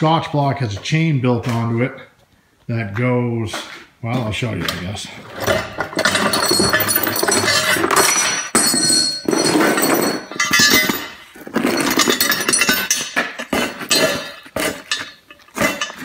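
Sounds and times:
chain clinking and rattling: 5.4s - 16.0s.

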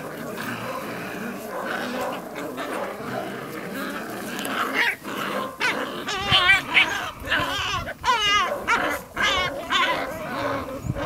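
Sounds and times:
puppies whining and yipping: 4.2s - 11.0s.

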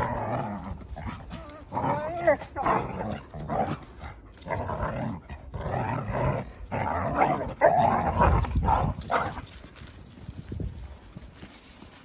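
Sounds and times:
dogs growling: 0.0s - 9.4s.

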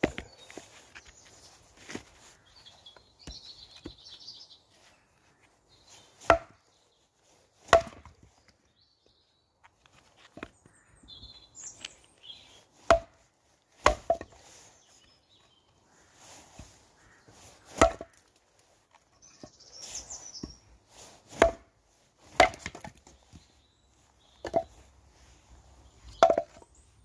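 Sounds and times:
axe chopping wood: 0.0s - 0.7s, 3.2s - 4.0s, 6.2s - 6.6s, 7.6s - 8.2s, 12.8s - 14.4s, 17.7s - 18.2s, 21.3s - 23.2s, 24.4s - 24.8s, 26.1s - 26.6s.

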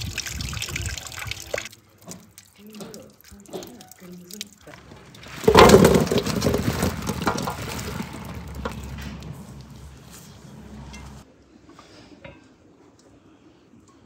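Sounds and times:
strawberries tipped into metal basin: 5.2s - 9.9s.

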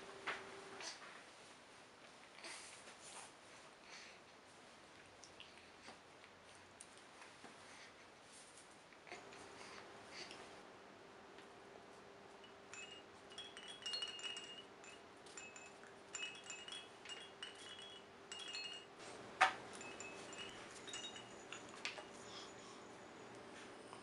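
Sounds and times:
small chimes tinkling: 12.3s - 23.4s.

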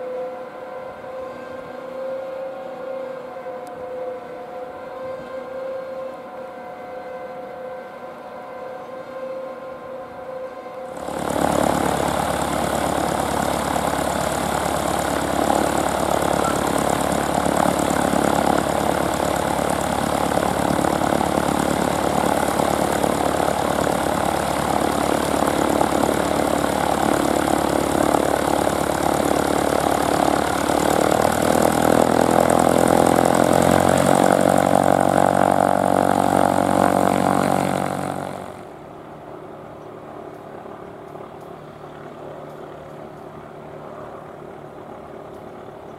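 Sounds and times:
propeller plane engine idling: 10.9s - 45.9s.

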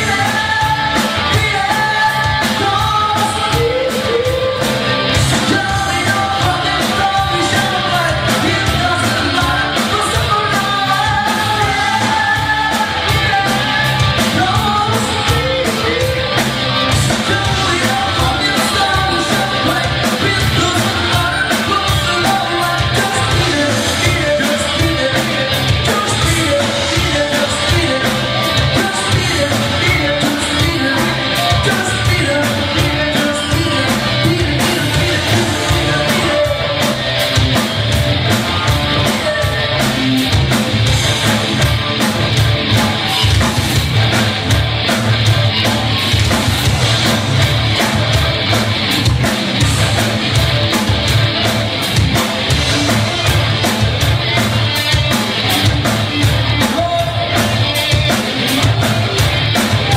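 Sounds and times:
person singing: 0.0s - 37.7s, 38.4s - 40.5s, 52.2s - 59.9s
live rock band playing: 0.0s - 59.9s.

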